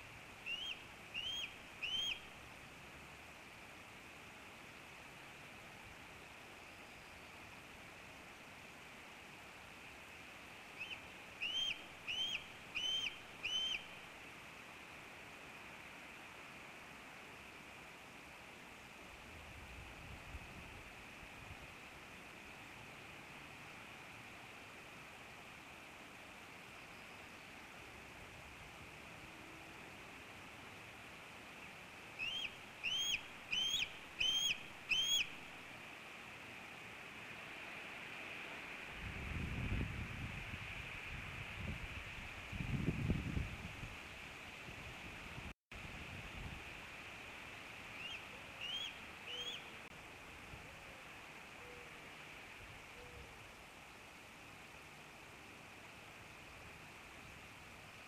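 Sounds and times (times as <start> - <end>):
steady background hiss: 0.0 - 58.0
bird whistling high notes: 0.5 - 2.2, 10.8 - 13.9, 32.2 - 35.3.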